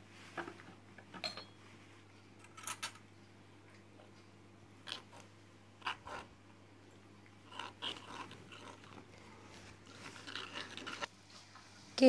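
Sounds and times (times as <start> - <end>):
fingers squishing batter: 4.8 - 11.1.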